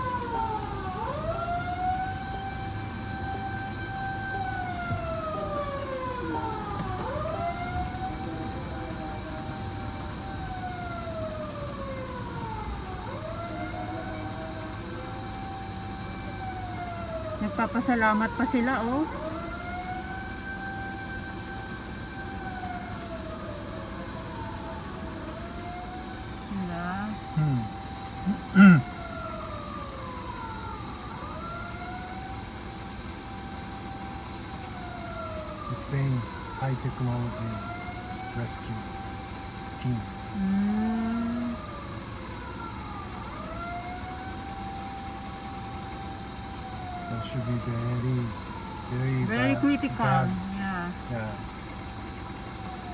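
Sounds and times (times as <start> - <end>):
fire truck siren wailing: 0.0 - 52.9
low traffic hum: 0.0 - 52.9.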